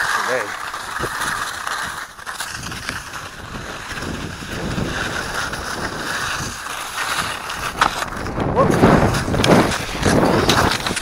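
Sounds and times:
wind buffeting microphone: 2.5 - 11.0.

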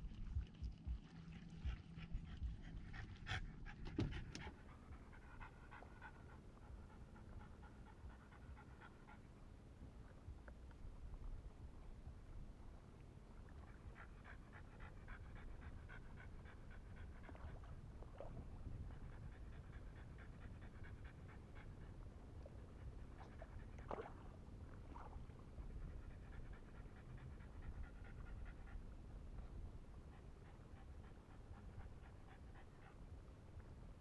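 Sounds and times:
dog panting: 1.6 - 9.4, 13.6 - 17.8, 18.6 - 23.9, 25.6 - 33.3.

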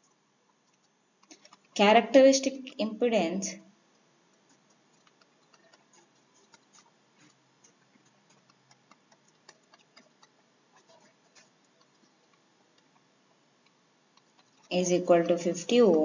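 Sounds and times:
stylus tapping on tablet: 4.5 - 13.0.

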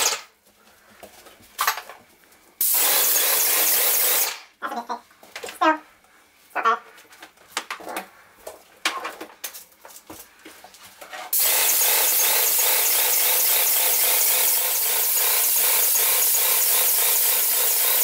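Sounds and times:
paint sprayer hissing: 2.6 - 4.5, 11.3 - 18.0.

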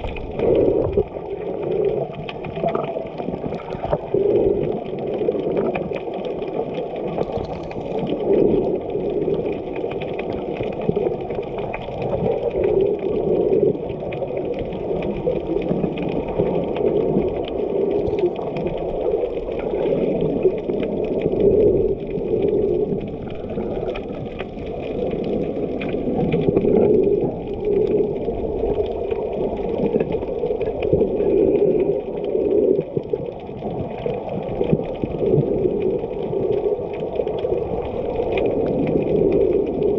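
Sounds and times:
muffled underwater water rushing: 0.0 - 39.9.

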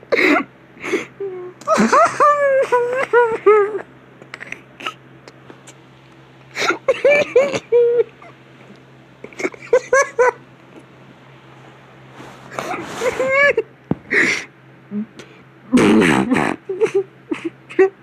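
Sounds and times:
steady low hum: 0.0 - 18.0
man laughing hard: 1.6 - 3.8, 6.6 - 8.3, 9.3 - 10.4, 12.7 - 14.4.

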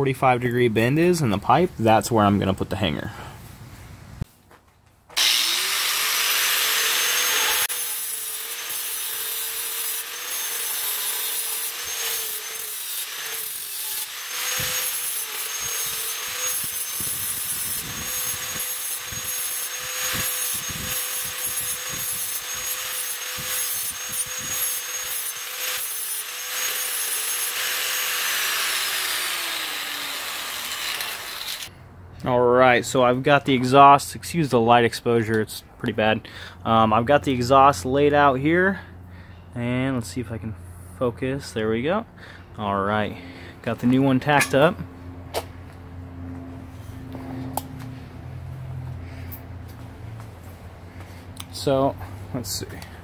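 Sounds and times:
electric cutting tool whine: 5.2 - 31.7.

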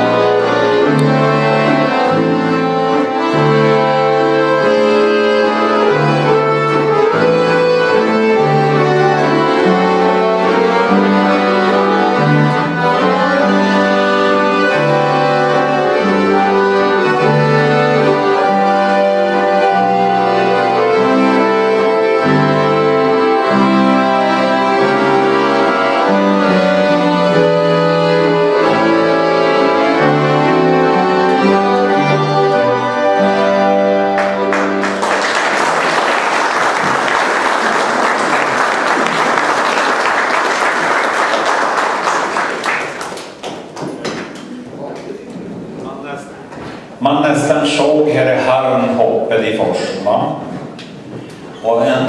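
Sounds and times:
accordions playing a tune: 0.0 - 43.1
audience applause: 34.2 - 44.7.

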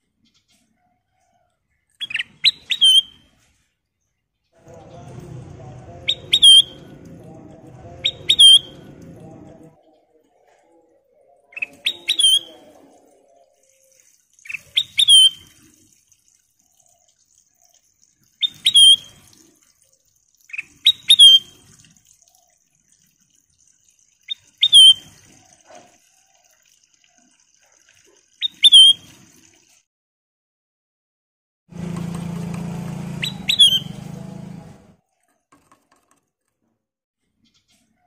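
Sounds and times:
bird whistled song: 2.0 - 3.2, 6.0 - 6.9, 8.0 - 8.9, 11.5 - 12.6, 14.5 - 15.5, 18.4 - 19.1, 20.5 - 21.6, 24.3 - 25.1, 28.4 - 29.1, 33.2 - 34.0.

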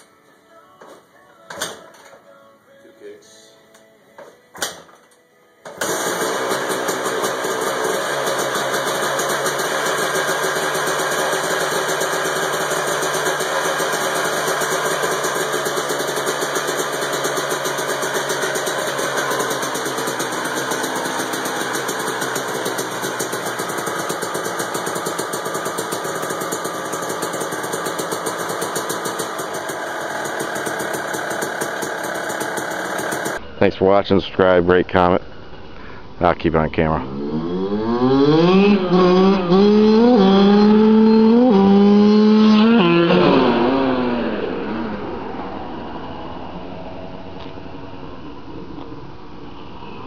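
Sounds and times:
dirt bike engine idling: 5.8 - 33.8.

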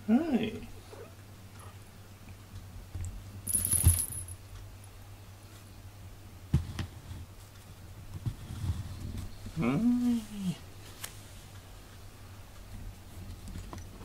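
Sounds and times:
collar charm jingling: 3.5 - 4.4.

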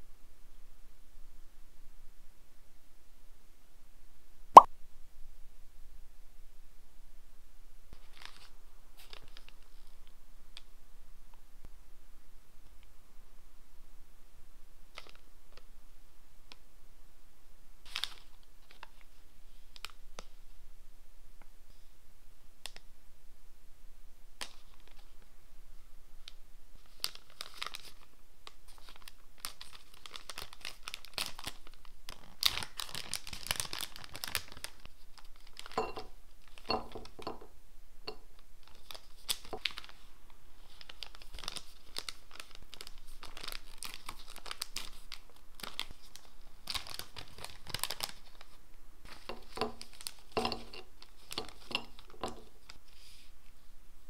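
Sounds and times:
plastic packaging crinkling and tearing: 17.9 - 19.0, 26.8 - 37.3, 38.6 - 52.9.

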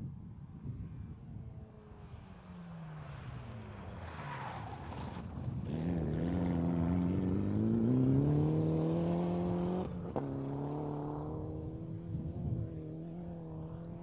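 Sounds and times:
rally car engine accelerating: 3.9 - 14.0.

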